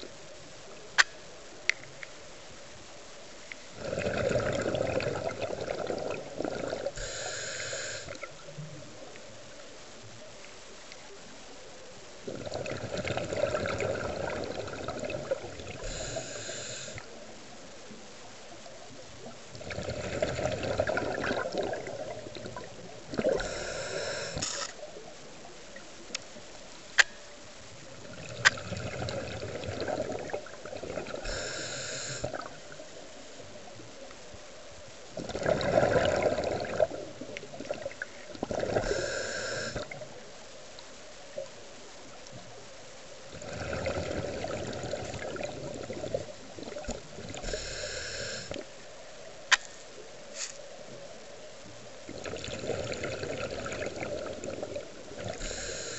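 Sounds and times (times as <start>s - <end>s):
bubbling exhaled air underwater: 3.8s - 8.8s, 12.2s - 17.1s, 19.2s - 24.7s, 27.9s - 32.9s, 35.1s - 40.2s, 43.3s - 48.8s, 52.0s - 55.9s
regulator inhalation hiss: 7.0s - 8.3s, 15.8s - 17.1s, 23.3s - 24.8s, 31.2s - 32.4s, 38.8s - 40.0s, 47.4s - 48.7s, 55.3s - 55.9s.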